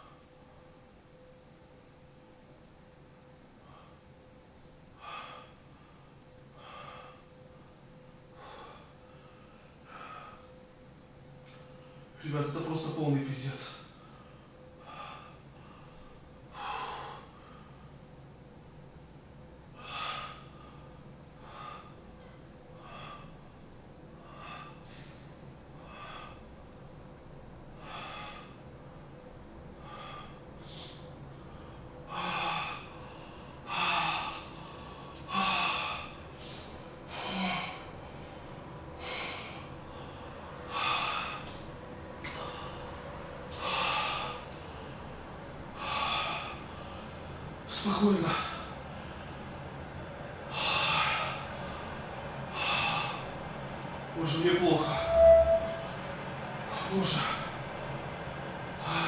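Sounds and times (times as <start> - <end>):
man breathing heavily: 4.9 - 7.5, 8.2 - 10.6, 13.9 - 18.1, 19.7 - 23.6, 24.2 - 26.6, 27.8 - 28.7, 29.7 - 41.6, 42.2 - 47.6, 48.2 - 49.7, 50.4 - 53.4.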